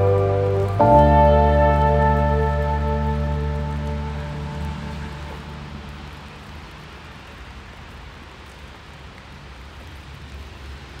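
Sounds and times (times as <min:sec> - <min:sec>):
low music notes: 0:00.0 - 0:06.6
outdoor background hiss and rumble: 0:00.0 - 0:11.0.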